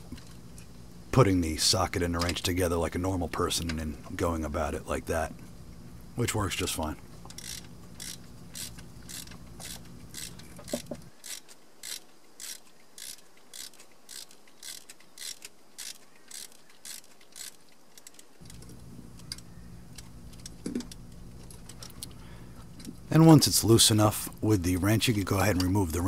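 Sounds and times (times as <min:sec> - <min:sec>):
ratchet wrench clicking: 0:07.3 - 0:18.6.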